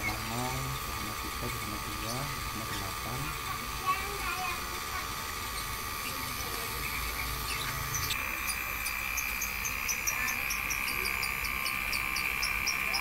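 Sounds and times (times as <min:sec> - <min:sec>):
air conditioner compressor hum: 0:00.0 - 0:13.0
steady high whine: 0:00.0 - 0:13.0.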